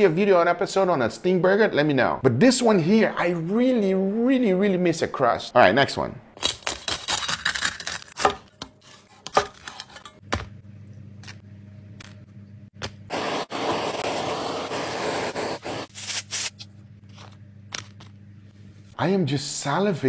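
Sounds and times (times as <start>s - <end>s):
knife cutting crispy pork skin: 6.4s - 10.0s.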